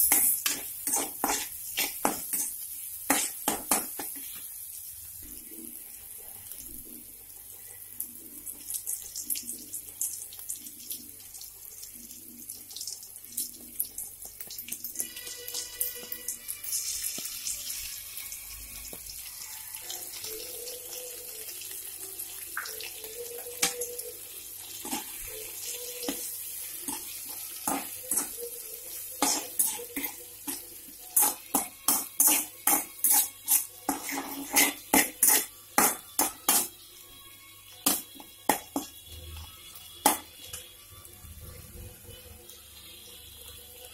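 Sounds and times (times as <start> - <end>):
metal spatula scraping pan: 0.0 - 4.4, 24.7 - 25.4, 26.0 - 36.8
food sizzling in a pan: 0.0 - 43.9.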